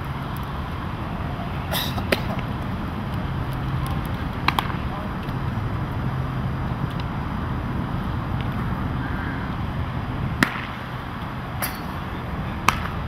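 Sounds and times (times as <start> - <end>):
low hum of traffic: 0.0 - 13.0
baseball popping into mitt: 4.4 - 4.8, 12.6 - 13.0.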